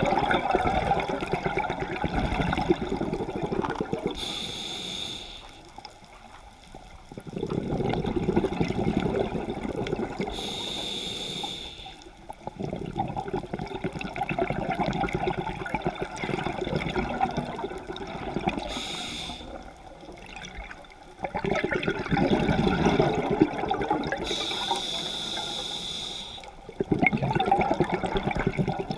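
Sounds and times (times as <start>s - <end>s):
regulator inhale hiss with whistle: 4.2s - 5.7s, 10.3s - 12.1s, 18.6s - 19.6s, 24.3s - 26.6s
rumbling exhaust bubbles: 7.1s - 10.4s, 20.3s - 24.4s.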